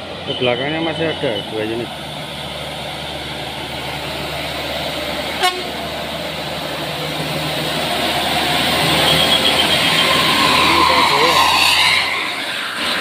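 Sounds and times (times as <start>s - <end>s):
bus engine pulling uphill: 0.0s - 13.0s
short horn toot: 5.4s - 5.8s.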